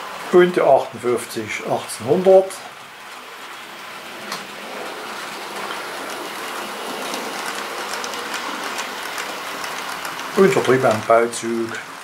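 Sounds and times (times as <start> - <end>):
model train wheels rattling on rails: 0.8 - 12.0.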